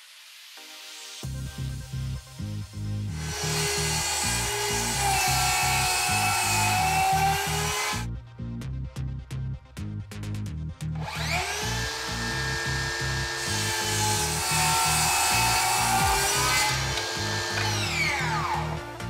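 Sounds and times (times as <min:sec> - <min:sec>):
background music with beat: 0:00.0 - 0:19.0
circular saw cutting wood: 0:03.1 - 0:08.1, 0:11.0 - 0:19.0
saw blade whining: 0:03.1 - 0:08.1, 0:11.0 - 0:19.0.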